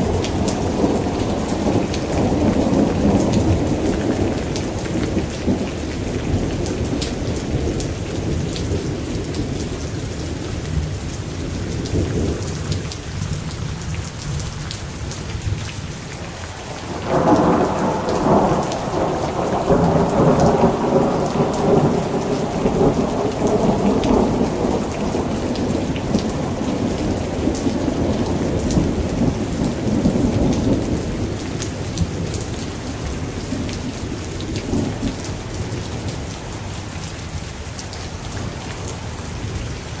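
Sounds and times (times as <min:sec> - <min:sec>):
rain pattering: 0:00.0 - 0:40.0
thunder rumbling: 0:16.6 - 0:35.4.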